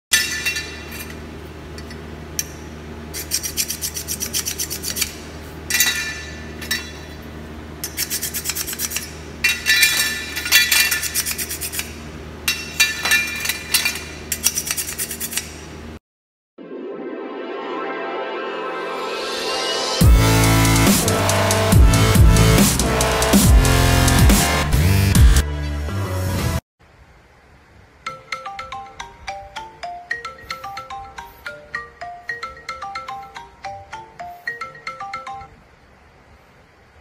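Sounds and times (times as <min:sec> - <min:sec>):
gloved hands scraping plastic: 0:03.2 - 0:05.2.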